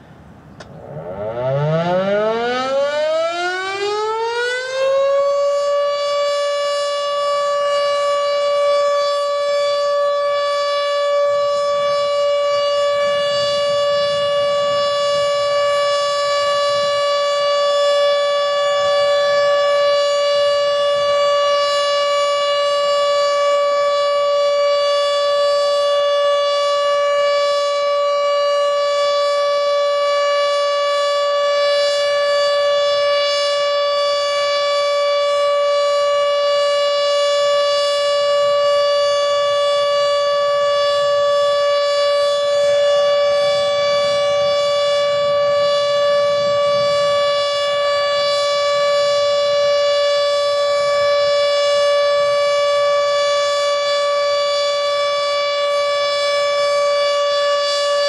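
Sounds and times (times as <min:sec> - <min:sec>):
warning siren steady tone: 0:00.0 - 0:58.0.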